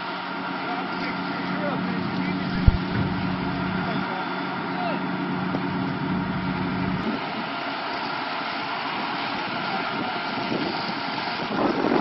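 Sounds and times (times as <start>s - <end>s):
low hum: 2.5s - 3.9s.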